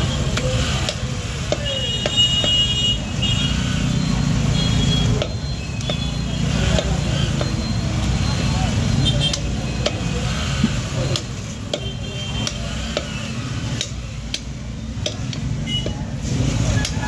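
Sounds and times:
cleaver chopping meat on wooden block: 0.3s - 2.7s, 5.1s - 7.6s, 9.3s - 16.0s, 16.8s - 17.0s.

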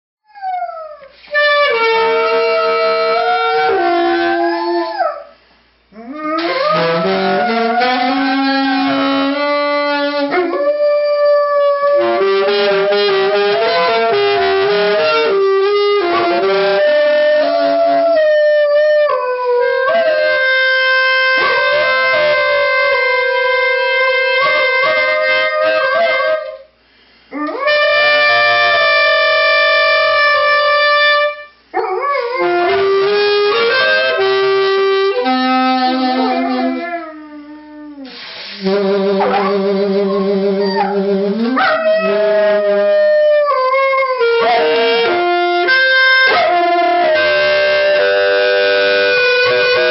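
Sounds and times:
saxophone playing: 0.4s - 49.9s
dog howling: 2.2s - 5.3s, 6.0s - 9.2s, 21.4s - 23.2s, 31.8s - 32.8s, 36.2s - 38.0s, 39.2s - 44.8s.

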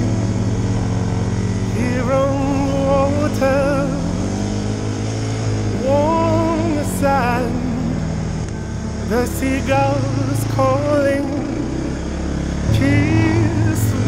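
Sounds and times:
atv engine running: 0.0s - 14.0s
person singing a song: 1.6s - 4.3s, 5.7s - 8.1s, 9.0s - 14.0s.

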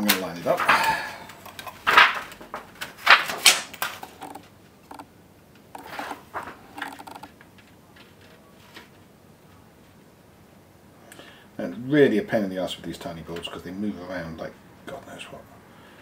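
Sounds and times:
metal stencil rustling and scraping: 5.8s - 7.3s.

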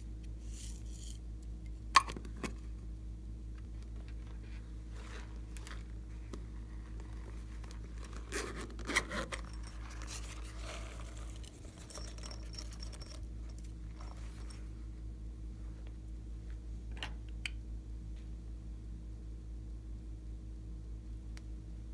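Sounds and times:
low electrical hum: 0.0s - 21.9s.

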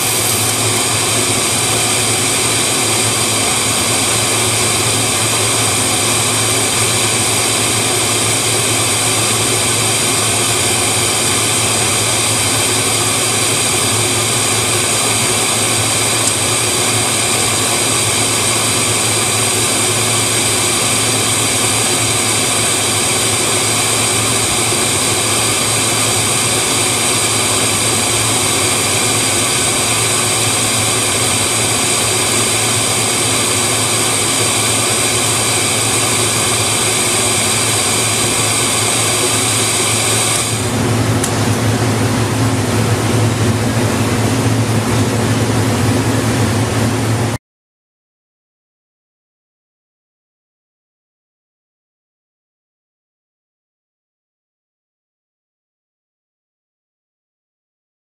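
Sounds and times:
welding vacuum whine and hiss: 0.0s - 42.6s.

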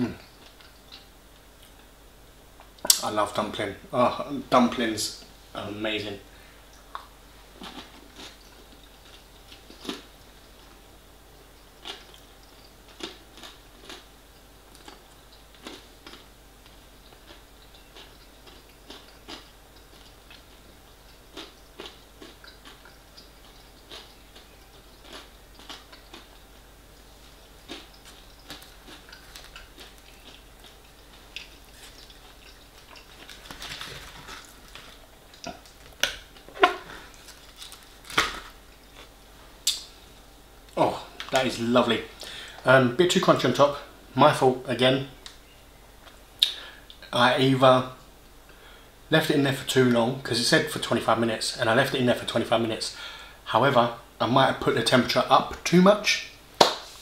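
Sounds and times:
man chewing crunchy food: 6.8s - 39.9s
lip smacks and mouth clicks: 27.7s - 33.6s, 39.0s - 39.9s, 46.0s - 47.1s.

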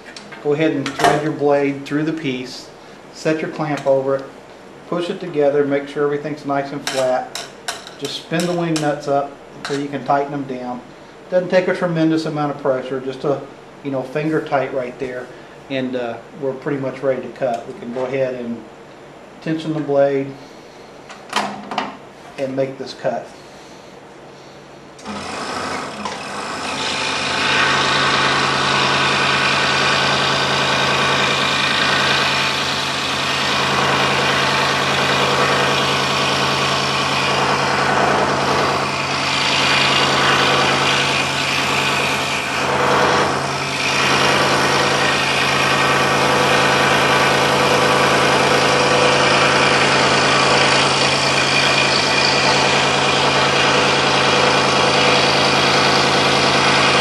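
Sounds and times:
scroll saw cutting wood: 25.0s - 57.0s.

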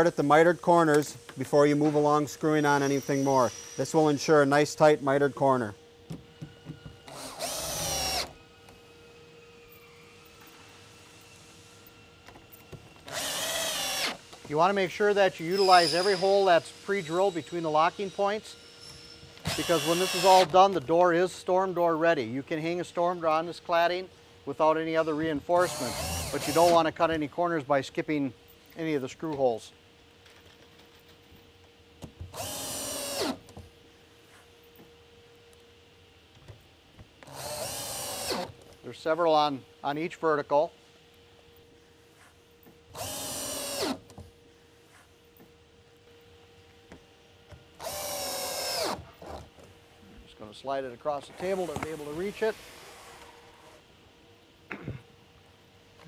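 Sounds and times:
cordless drill motor whine: 7.0s - 14.4s, 15.4s - 20.6s, 25.6s - 26.8s, 32.3s - 33.4s, 37.2s - 38.5s, 42.9s - 44.0s, 47.8s - 49.1s.

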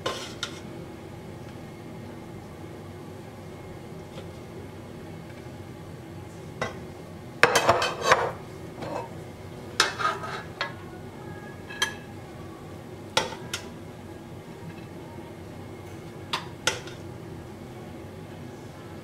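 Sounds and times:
metal skimmer scraping a pot: 0.0s - 0.6s, 7.7s - 9.1s, 9.8s - 10.6s.

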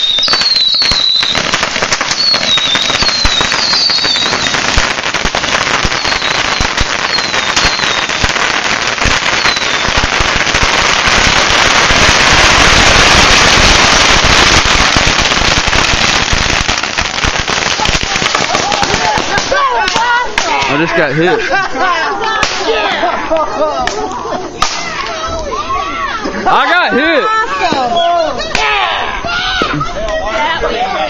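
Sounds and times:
falling whistles: 0.0s - 1.5s, 2.1s - 4.6s, 9.4s - 9.8s
bottle rockets crackling and popping: 0.0s - 21.2s, 22.3s - 22.9s, 23.8s - 25.2s.

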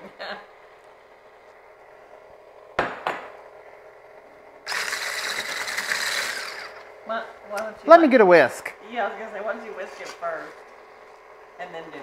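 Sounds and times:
stick blender whisking: 4.7s - 6.9s.

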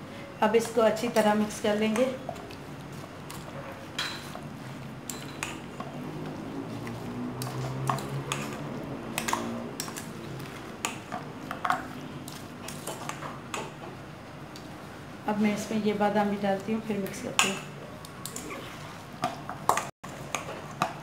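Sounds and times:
metal spoon scraping steel bowl: 7.4s - 10.0s.

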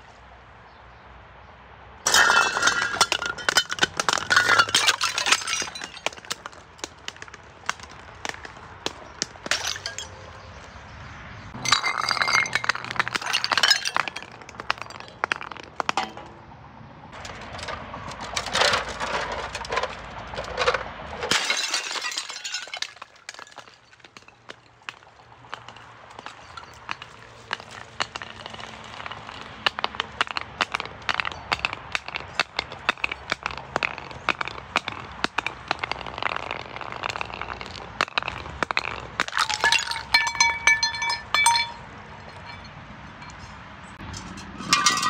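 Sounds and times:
glass bottles shattering: 2.1s - 10.6s, 11.6s - 16.3s, 18.2s - 43.4s, 44.2s - 45.0s
glass tinkling: 9.5s - 10.4s, 39.3s - 43.5s, 44.2s - 45.0s.

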